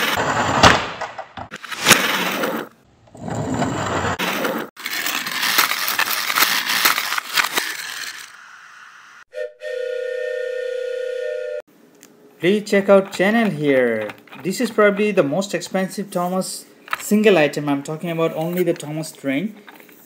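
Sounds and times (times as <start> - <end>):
plastic toy trains clattering: 4.8 - 8.4, 12.8 - 15.2.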